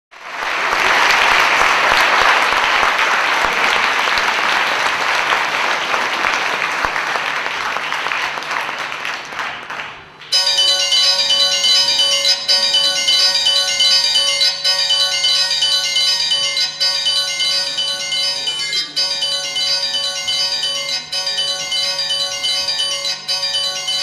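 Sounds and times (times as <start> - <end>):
audience applauding: 0.2 - 10.4
high chiming bell-like melody: 10.4 - 24.0.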